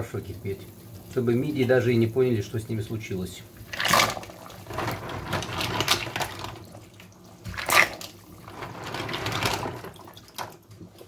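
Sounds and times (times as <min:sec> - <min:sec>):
water sloshing and splashing: 0:03.5 - 0:11.0.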